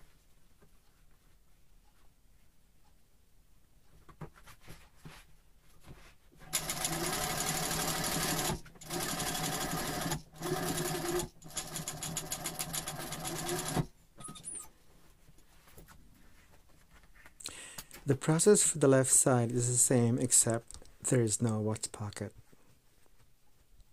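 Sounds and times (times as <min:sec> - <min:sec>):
sewing machine stitching: 0:06.5 - 0:13.9.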